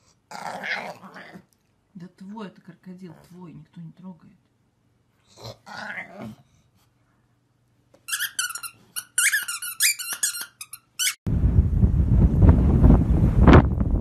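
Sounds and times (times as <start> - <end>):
squeaky toy squeaking: 8.1 - 11.2
wind buffeting microphone: 11.3 - 14.0.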